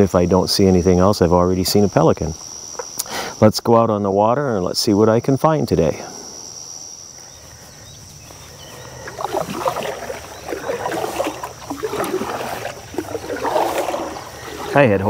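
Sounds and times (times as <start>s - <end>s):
high insect chirring: 0.0s - 15.0s
paddle splashing water: 8.6s - 15.0s.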